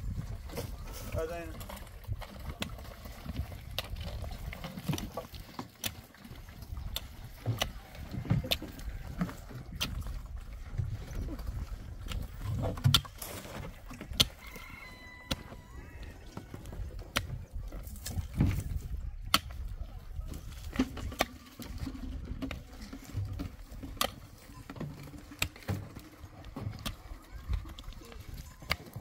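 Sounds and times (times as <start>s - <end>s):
digging tool striking stony soil: 12.0s - 14.4s, 17.0s - 19.7s, 23.9s - 24.3s, 25.1s - 25.8s.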